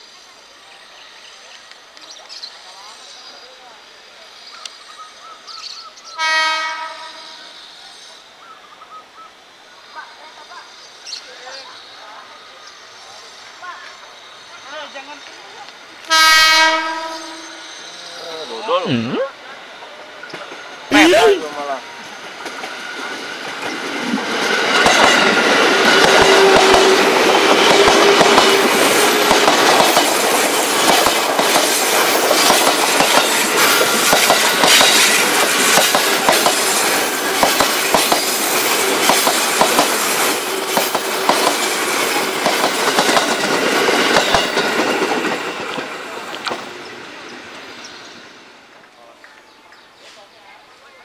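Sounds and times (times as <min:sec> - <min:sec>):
train rumble: 0:19.4 - 0:49.0
train wheels clacking over rail joints: 0:22.2 - 0:46.7.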